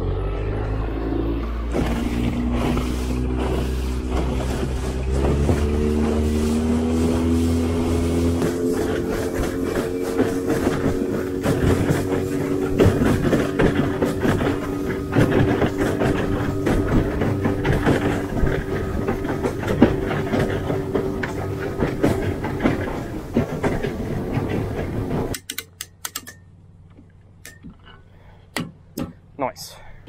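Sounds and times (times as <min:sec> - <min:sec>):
hull slapping over waves: 0:00.0 - 0:25.4
outboard motor whining: 0:00.0 - 0:30.0
heavy wind noise: 0:01.7 - 0:25.4
trailer winch clicking: 0:01.7 - 0:29.3.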